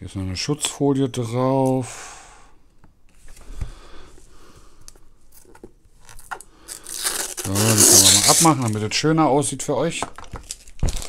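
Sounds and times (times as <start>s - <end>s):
plastic film tearing: 6.0s - 8.9s, 10.2s - 11.0s.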